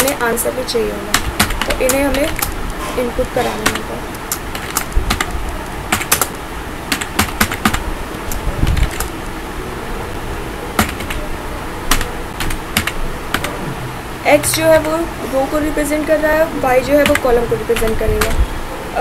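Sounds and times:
background hiss: 0:00.0 - 0:19.0
keyboard key clicks: 0:03.6 - 0:09.1, 0:10.8 - 0:11.2, 0:17.0 - 0:18.4.

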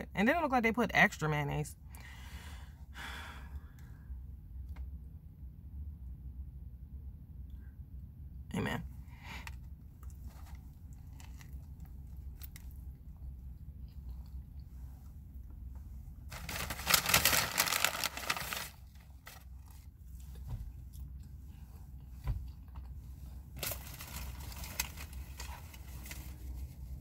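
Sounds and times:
low steady hum: 0:00.0 - 0:27.0
paper bag rustling: 0:16.3 - 0:19.9, 0:23.6 - 0:26.9.

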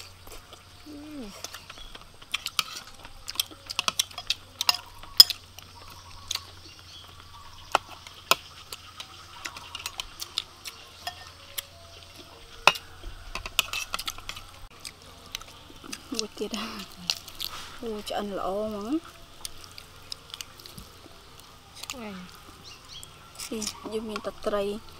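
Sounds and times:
spoons clinking on ceramic plates: 0:03.7 - 0:05.4, 0:11.0 - 0:11.7.

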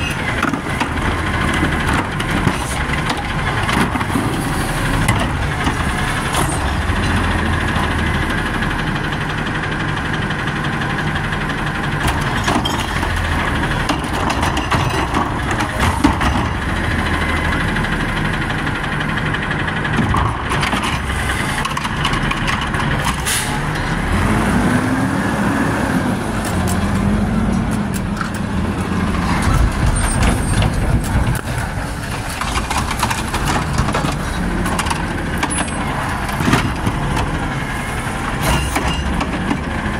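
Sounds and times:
truck engine revving: 0:15.2 - 0:39.9.

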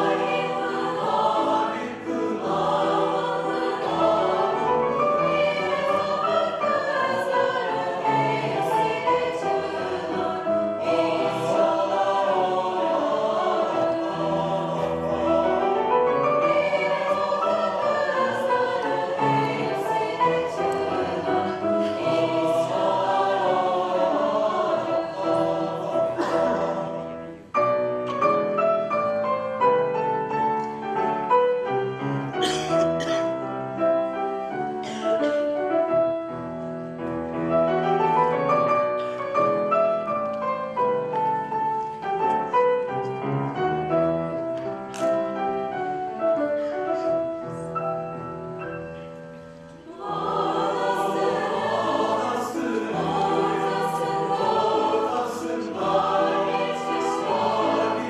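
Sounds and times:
mixed choir singing: 0:00.0 - 0:30.0, 0:49.7 - 0:58.0
piano: 0:00.0 - 0:58.0.

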